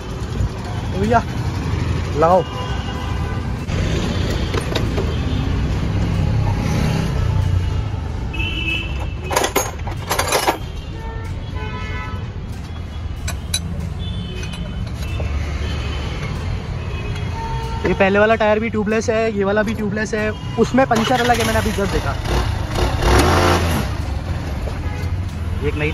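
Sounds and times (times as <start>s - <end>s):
street traffic rumble: 0.0s - 25.9s
spanners clattering in crate: 9.1s - 10.8s.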